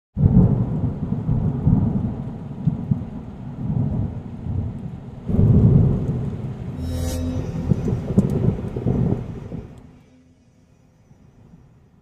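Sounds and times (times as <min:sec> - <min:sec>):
thunder rumbling: 0:07.5 - 0:10.0.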